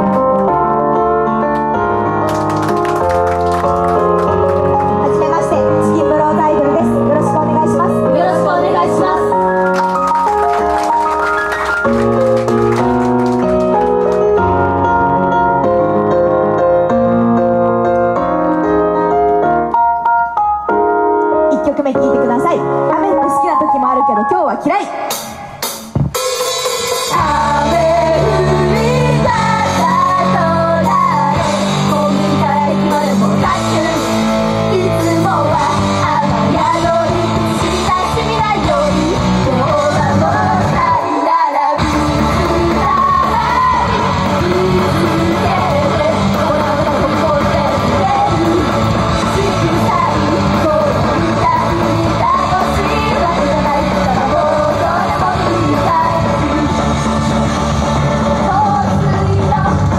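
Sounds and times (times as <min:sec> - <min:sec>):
guitar and drums: 0:25.1 - 0:27.4, 0:41.8 - 0:59.9
group singing rock song: 0:35.2 - 0:59.9.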